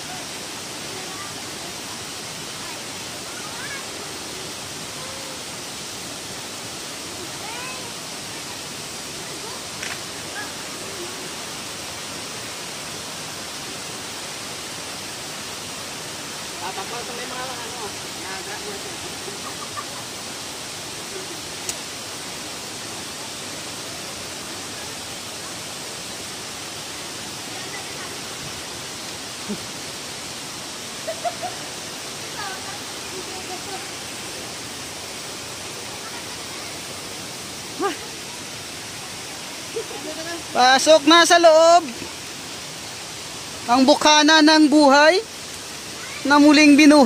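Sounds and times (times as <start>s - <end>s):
mountain stream rushing: 0.0s - 47.0s.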